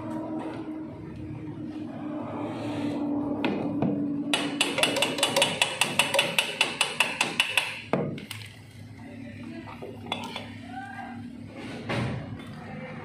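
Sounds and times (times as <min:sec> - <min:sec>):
hand tool tapping on metal: 0:04.3 - 0:07.8.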